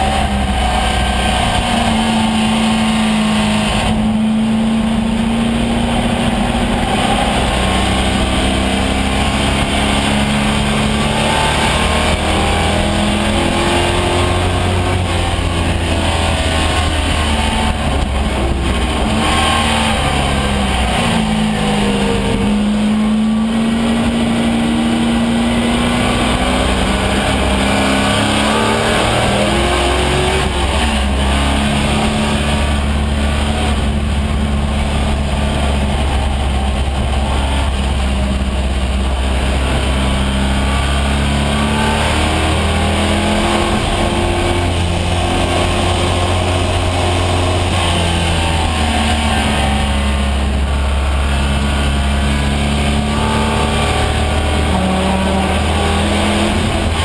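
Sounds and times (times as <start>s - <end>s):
race car engine accelerating: 0.0s - 57.0s
wind and road noise: 0.0s - 57.0s.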